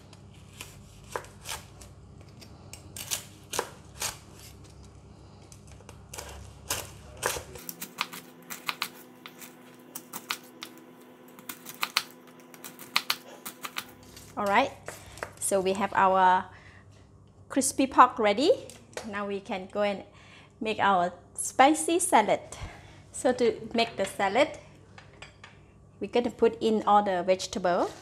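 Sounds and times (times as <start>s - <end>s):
knife crunching through crackling: 0.4s - 4.6s, 5.9s - 15.0s.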